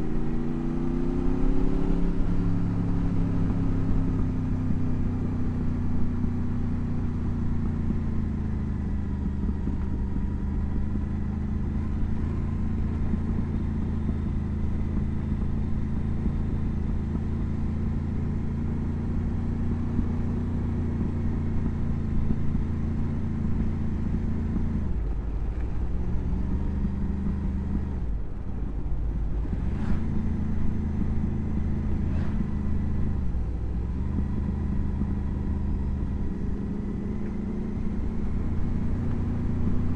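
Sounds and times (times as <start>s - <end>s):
motorcycle engine running: 1.3s - 25.0s.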